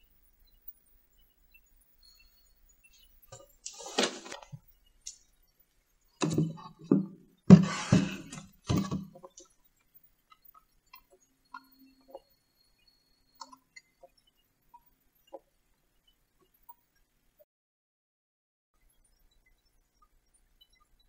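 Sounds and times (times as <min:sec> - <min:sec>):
knocks and clinks of model house: 0:06.2 - 0:09.5.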